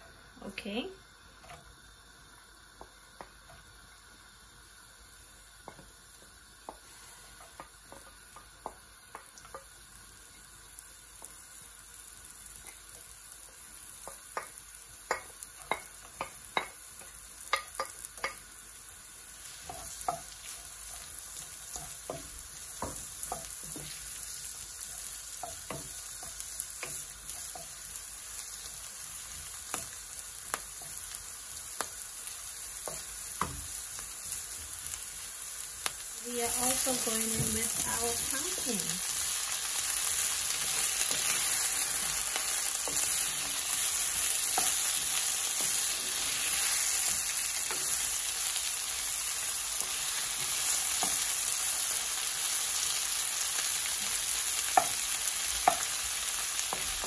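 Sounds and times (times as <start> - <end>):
vegetables sizzling in oil: 0.0 - 57.0
wooden spoon tapping and scraping pan: 5.6 - 5.9, 6.6 - 9.8, 14.0 - 18.5, 19.5 - 32.0, 32.6 - 34.1, 35.9 - 38.7, 40.6 - 48.1, 54.0 - 56.0, 56.6 - 57.0.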